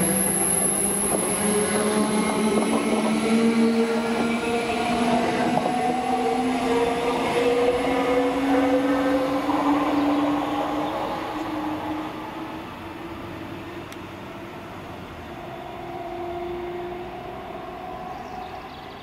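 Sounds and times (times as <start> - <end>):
electric train motors whining: 0.0 - 12.8
wheels rumbling on rails: 0.0 - 19.0.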